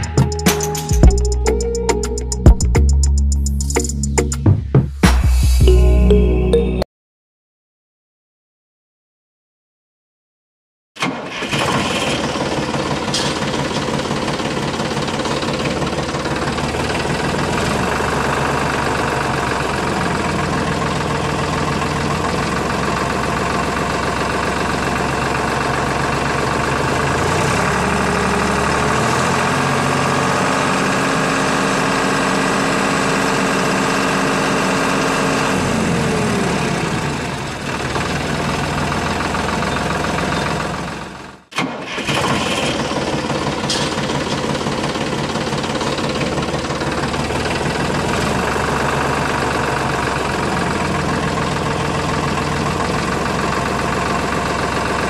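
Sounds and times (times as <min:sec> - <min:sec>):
engine running: 0:11.0 - 0:41.4, 0:42.0 - 0:55.0.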